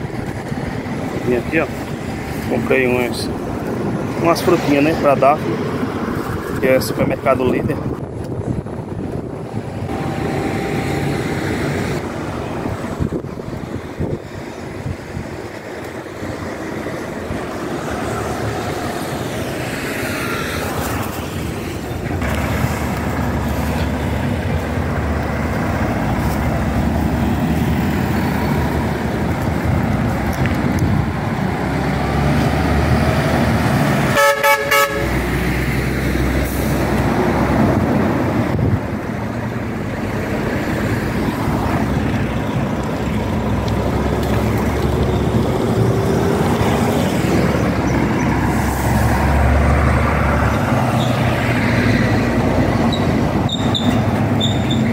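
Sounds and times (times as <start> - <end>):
traffic rumbling past: 0.0 - 54.9
vehicle horn honk: 34.1 - 35.2.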